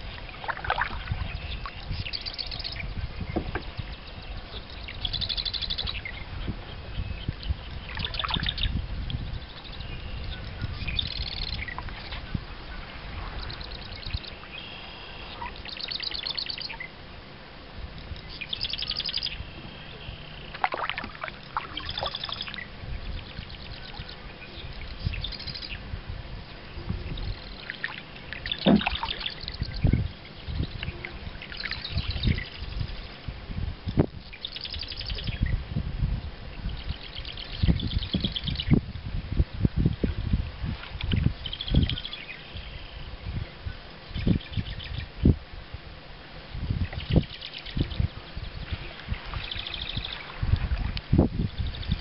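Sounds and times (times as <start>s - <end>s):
songbirds singing: 0.0s - 17.4s, 18.0s - 35.6s, 36.5s - 40.4s, 41.0s - 45.4s, 46.7s - 52.0s
water splashing from paddle strokes: 0.2s - 1.8s, 20.5s - 22.6s, 27.7s - 29.6s.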